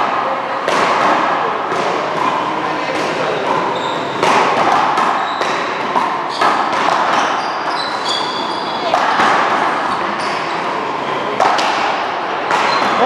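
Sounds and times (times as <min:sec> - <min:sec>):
paddle striking rubber ball: 0:00.0 - 0:07.4, 0:11.4 - 0:13.0
ball bouncing off wall and floor: 0:00.0 - 0:10.5, 0:11.4 - 0:13.0.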